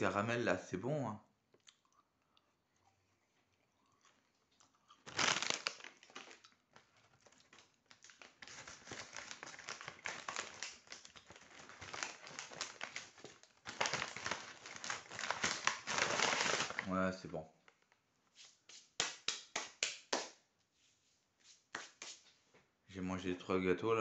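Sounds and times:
loud crinkling and rustling: 5.0s - 16.9s.

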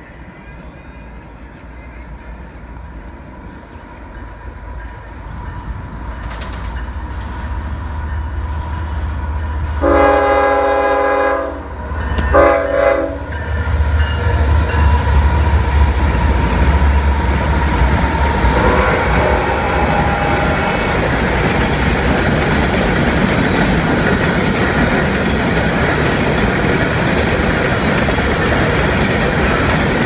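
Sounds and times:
diesel locomotive engine rumbling: 0.0s - 30.0s
train horn blasts: 9.6s - 13.9s, 14.8s - 21.5s.

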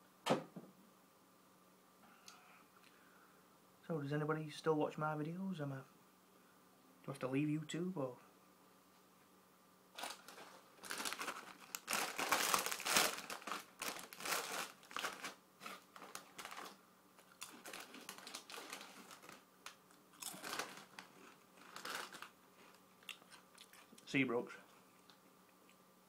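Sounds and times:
crisp packet crinkling: 9.9s - 24.0s.

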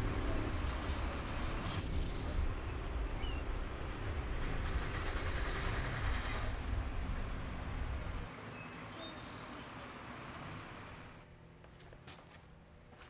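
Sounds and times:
heavy machinery rumble: 0.0s - 8.3s.

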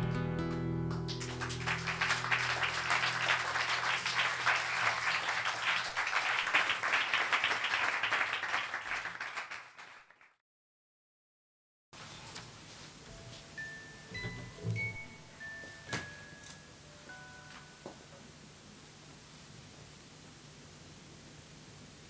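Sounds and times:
audience applauding: 0.9s - 10.4s.

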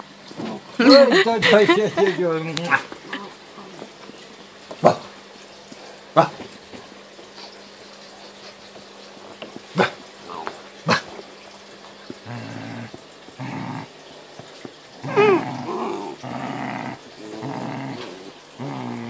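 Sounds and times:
puppies growling: 0.4s - 6.6s, 9.2s - 11.4s, 12.1s - 19.0s
puppy yelping: 15.0s - 16.2s.

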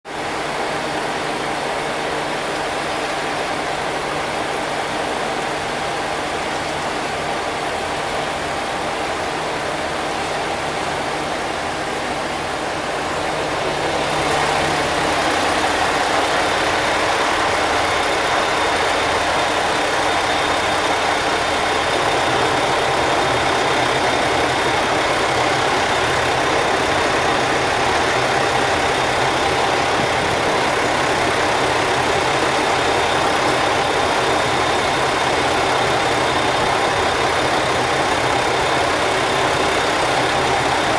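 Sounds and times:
train idling at platform: 0.1s - 40.9s.

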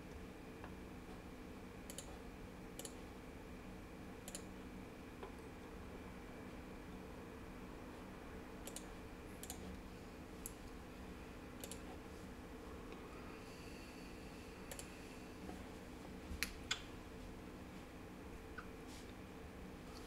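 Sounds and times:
steady low hum: 0.0s - 20.0s
computer mouse clicking: 1.9s - 2.2s, 2.8s - 3.0s, 4.2s - 4.5s, 8.6s - 9.8s, 11.6s - 12.0s, 14.7s - 15.0s.

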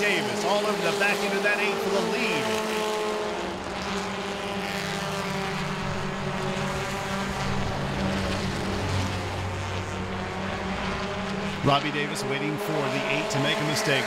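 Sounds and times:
race truck engines droning: 0.0s - 14.0s.

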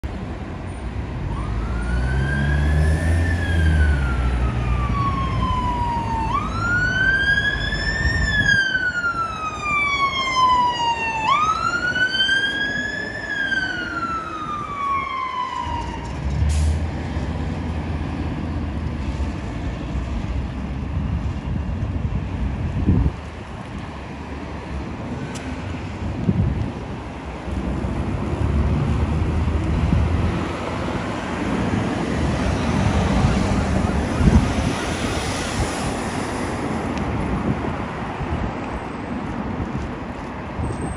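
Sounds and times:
road traffic: 0.0s - 40.9s
fire engine siren wailing: 1.3s - 16.8s, 32.0s - 36.5s.

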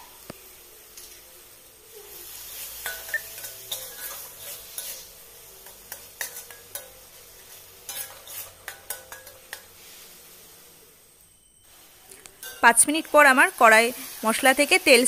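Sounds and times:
paste sizzling: 0.0s - 15.0s
metal spatula scraping a pan: 2.0s - 10.8s, 11.6s - 13.1s.

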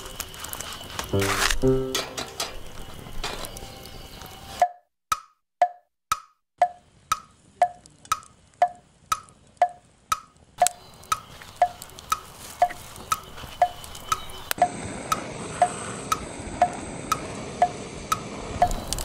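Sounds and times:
blowtorch hissing: 0.0s - 1.2s, 10.9s - 19.0s
wood-block tick-tock: 4.6s - 18.8s.

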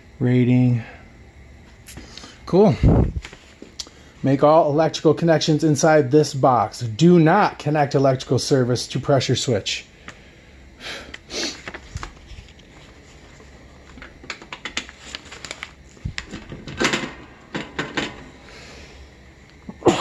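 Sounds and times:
paper tag rustling and crinkling: 11.5s - 17.3s.

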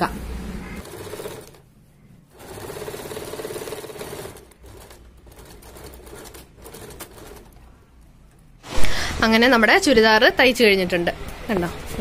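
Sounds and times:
sewing machine stitching: 0.7s - 1.6s, 2.3s - 7.6s.

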